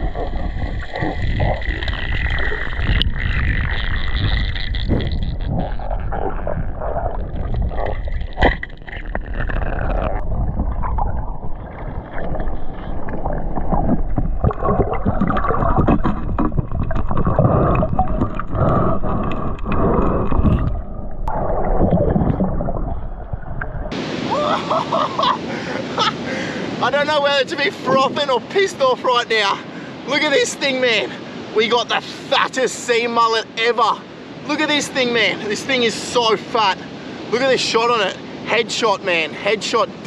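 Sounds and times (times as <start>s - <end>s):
underwater clicks and knocks: 0.0s - 23.9s
water gurgling underwater: 0.0s - 24.0s
surf on a beach: 23.9s - 40.0s.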